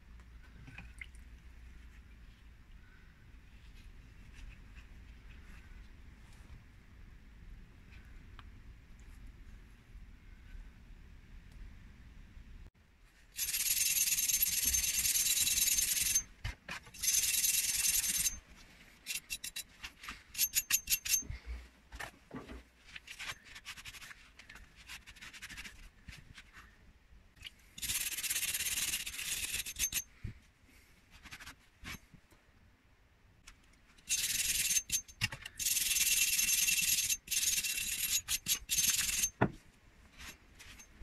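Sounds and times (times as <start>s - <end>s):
wire brush scrubbing steel: 27.8s - 30.1s.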